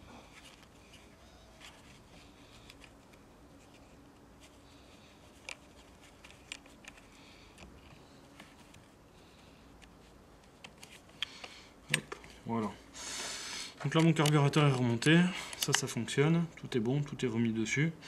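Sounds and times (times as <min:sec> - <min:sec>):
small parts clicking by hand: 0:05.3 - 0:08.0.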